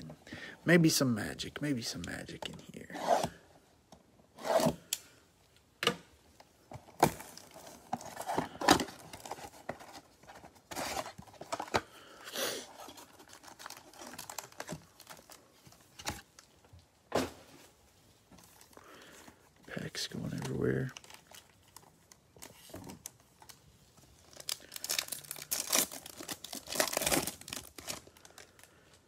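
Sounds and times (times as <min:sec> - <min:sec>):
plastic wrap crinkling and tearing: 0:12.6 - 0:16.5, 0:19.9 - 0:29.0.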